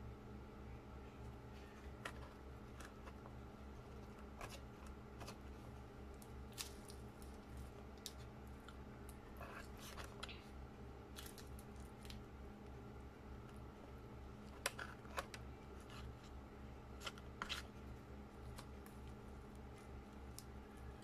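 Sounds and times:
low steady hum: 0.0s - 21.0s
crackles of crisp seaweed sheet: 6.2s - 10.4s, 11.1s - 12.2s.

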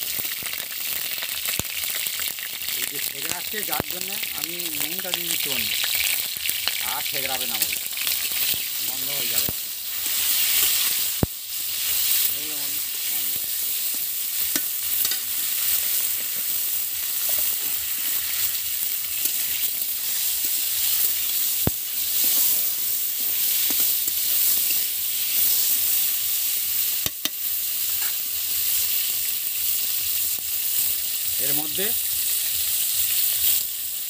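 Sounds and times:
vegetables sizzling in oil: 0.0s - 34.0s
spatula tapping pan: 14.5s - 15.2s, 27.0s - 27.4s.

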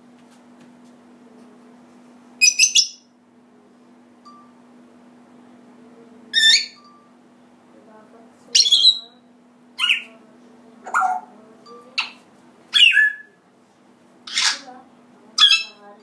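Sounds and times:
parrot squawks and whistles: 2.4s - 3.0s, 6.4s - 6.8s, 12.8s - 13.4s, 14.3s - 14.6s.

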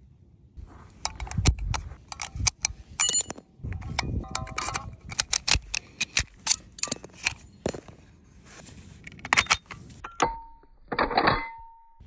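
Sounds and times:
cartridges clicking into magazine: 1.0s - 7.4s.

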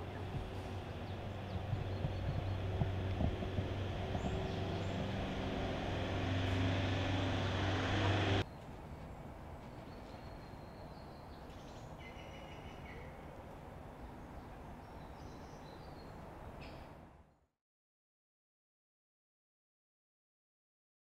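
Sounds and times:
engine drone with low hum: 0.0s - 8.4s
faint outdoor background: 0.0s - 17.6s.

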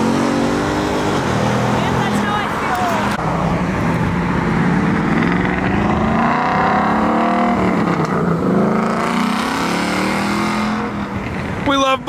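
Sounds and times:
car engine accelerating past: 4.3s - 11.1s.

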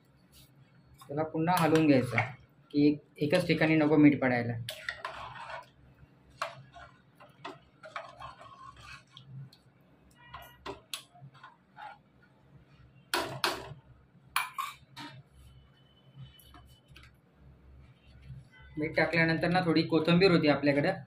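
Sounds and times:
spoon stirring in metal pot: 0.4s - 2.4s, 3.2s - 4.0s, 4.6s - 13.8s, 14.4s - 15.4s.

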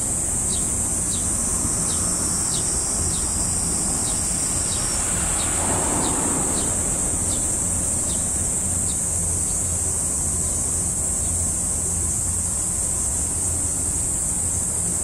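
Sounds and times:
rushing noise: 1.3s - 9.4s.

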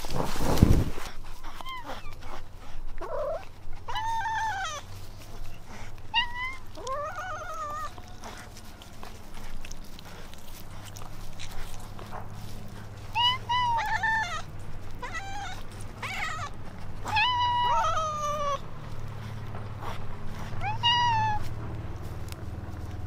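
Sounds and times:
cats meowing: 3.0s - 9.4s, 10.9s - 18.8s, 20.4s - 21.8s.

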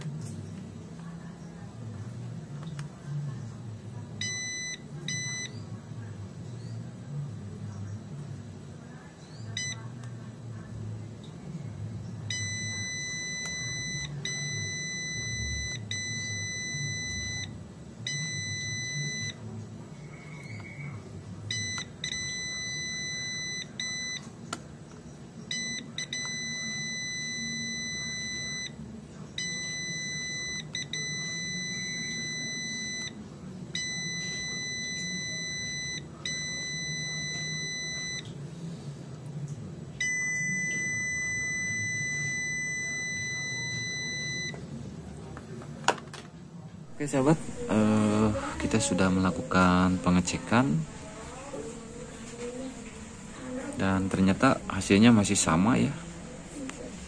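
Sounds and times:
multimeter continuity beeps: 4.1s - 5.7s, 9.1s - 10.0s, 12.2s - 38.4s, 40.0s - 44.6s.

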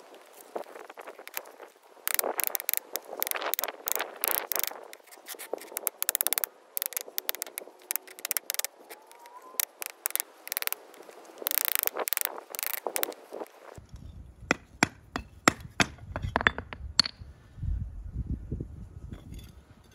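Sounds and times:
rattling clicks: 2.1s - 5.0s, 5.7s - 8.7s.

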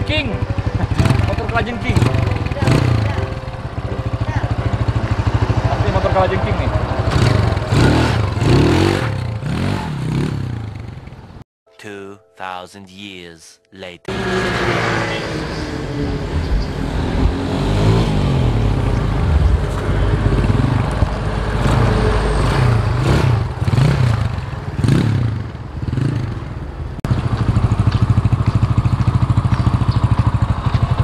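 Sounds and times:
motorcycle engine idling: 0.0s - 11.4s, 25.4s - 31.0s
motorcycle engine revving: 0.0s - 11.4s, 14.1s - 31.0s.

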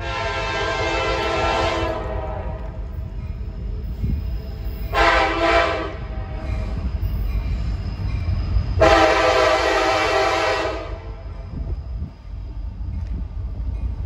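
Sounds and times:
locomotive air horn blasts: 0.0s - 2.8s, 4.9s - 6.5s, 8.8s - 11.2s
low rumble of approaching train: 0.0s - 14.0s.

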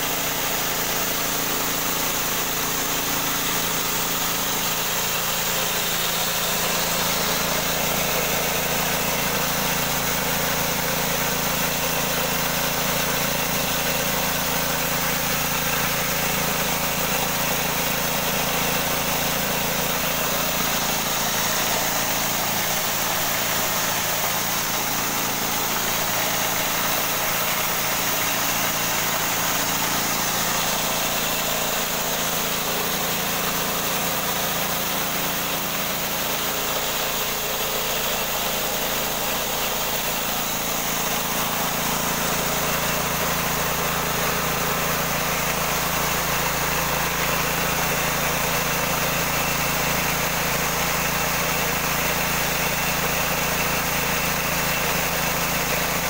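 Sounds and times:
grain hissing through machine: 0.0s - 56.0s
small engine drone: 0.0s - 56.0s.

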